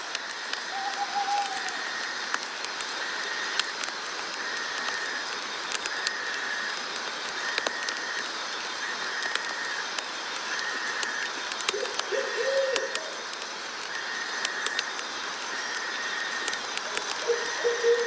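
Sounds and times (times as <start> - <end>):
even hiss: 0.0 - 18.0
sharp ticks: 0.1 - 8.3, 9.0 - 17.4.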